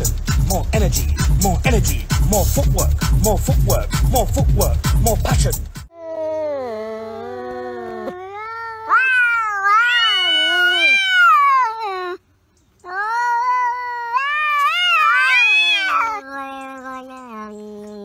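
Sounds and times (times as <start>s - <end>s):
cat yowling: 6.0s - 12.2s, 12.8s - 18.0s.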